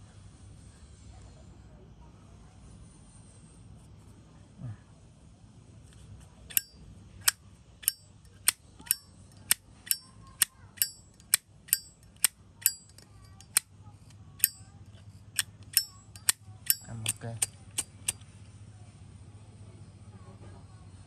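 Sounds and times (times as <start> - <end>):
lighter lid clicking open and shut: 6.5 - 13.6, 14.4 - 18.2.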